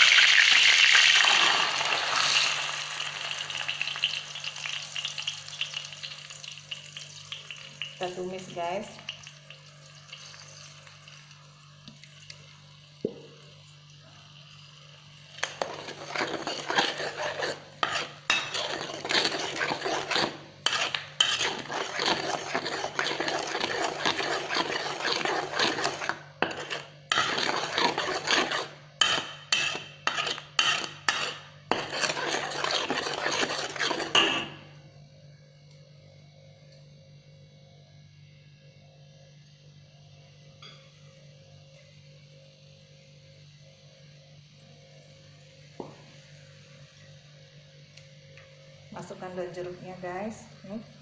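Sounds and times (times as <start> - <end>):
spatula scraping a wok: 15.4 - 34.6.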